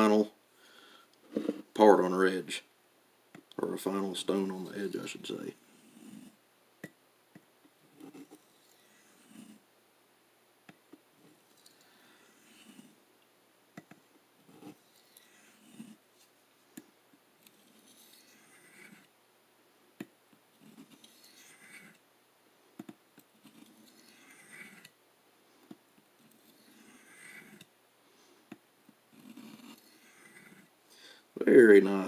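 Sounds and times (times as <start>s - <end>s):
knife blade scraping on honing stone: 17.5s - 19.1s, 20.6s - 22.0s, 23.5s - 24.9s, 26.2s - 27.6s, 29.2s - 30.6s.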